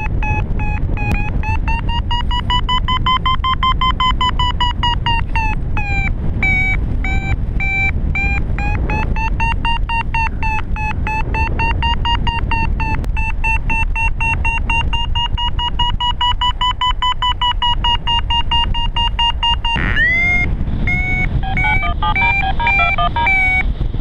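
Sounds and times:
variometer beeping: 0:00.0 - 0:23.8
wind on microphone: 0:00.0 - 0:24.0.

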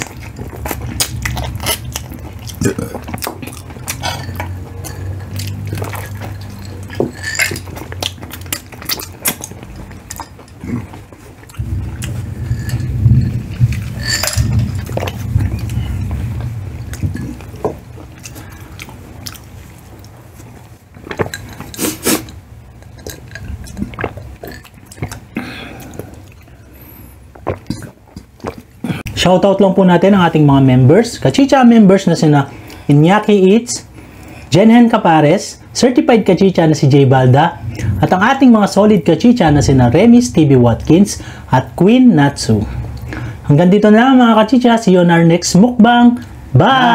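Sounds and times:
chewing and biting: 0:00.0 - 0:20.2, 0:21.0 - 0:26.6
low rumble: 0:11.5 - 0:18.9, 0:37.4 - 0:40.7.

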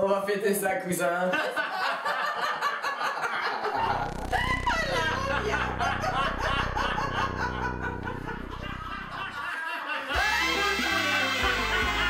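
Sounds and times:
man and woman laughing: 0:01.3 - 0:12.0
high squealing laugh: 0:03.5 - 0:12.0
low steady drone: 0:03.8 - 0:09.5.

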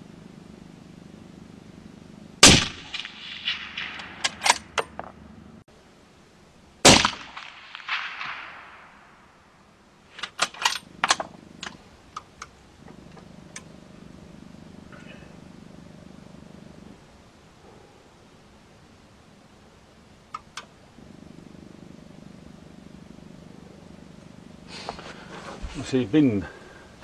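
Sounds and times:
suppressed rifle shots: 0:02.4 - 0:05.2, 0:06.8 - 0:09.4
sharp clicks: 0:02.7 - 0:05.1, 0:20.3 - 0:20.8.

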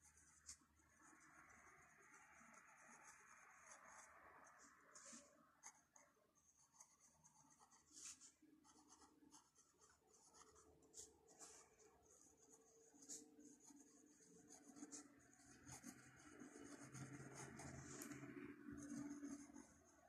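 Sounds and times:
pen nib scratching on paper: 0:04.9 - 0:20.0.

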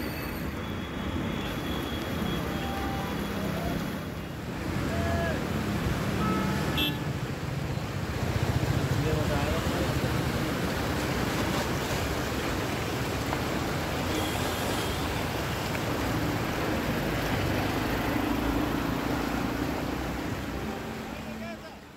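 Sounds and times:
tyres churning through water: 0:00.4 - 0:21.9.

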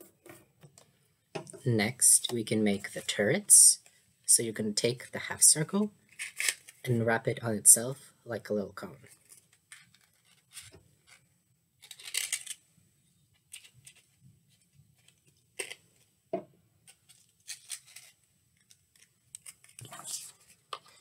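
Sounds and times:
paper rustling and crinkling: 0:09.1 - 0:11.2.

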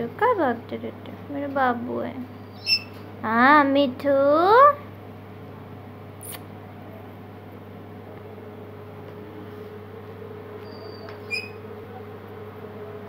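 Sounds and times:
low room hum: 0:00.0 - 0:13.0
parakeet squeak: 0:02.4 - 0:03.0, 0:10.6 - 0:11.6.

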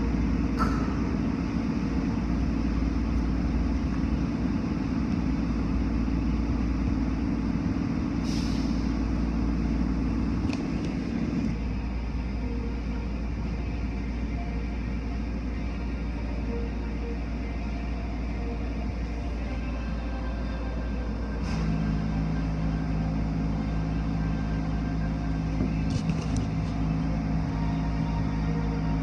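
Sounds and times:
car wash machinery running: 0:00.0 - 0:29.0
short hiss: 0:08.2 - 0:08.9.

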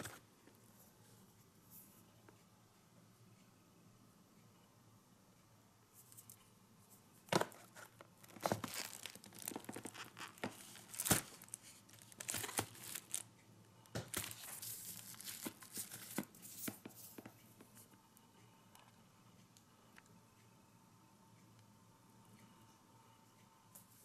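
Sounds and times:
cardboard and paper rustling: 0:07.3 - 0:13.3, 0:14.0 - 0:17.4.

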